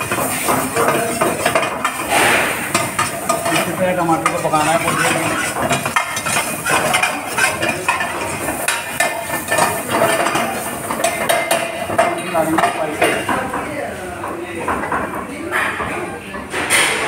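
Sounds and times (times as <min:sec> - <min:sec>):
ladle scraping a frying pan: 0:00.0 - 0:12.2
food sizzling in oil: 0:00.0 - 0:13.0.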